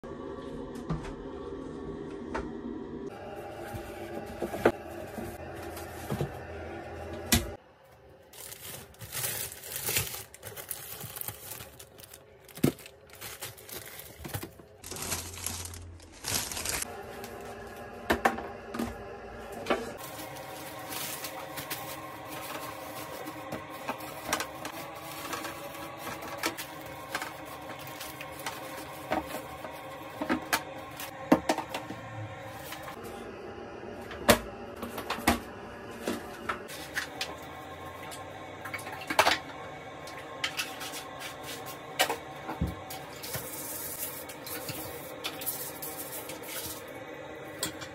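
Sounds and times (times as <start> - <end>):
crinkling and rustling: 7.9 - 17.5, 19.8 - 31.8.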